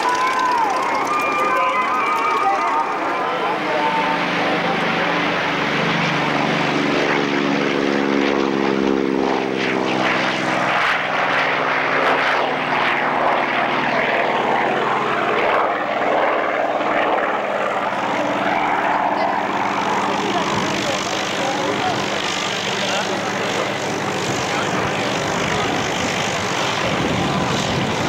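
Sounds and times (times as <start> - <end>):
propeller plane engine drone: 0.0 - 28.0.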